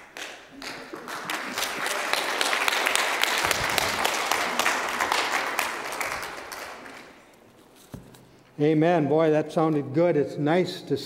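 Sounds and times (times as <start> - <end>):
congregation applauding: 0.0 - 7.3.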